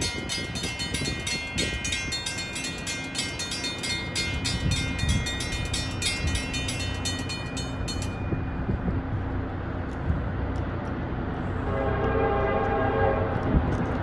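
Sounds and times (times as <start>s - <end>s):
railroad crossing bell ringing: 0.0s - 9.6s
freight train rumble: 0.0s - 14.0s.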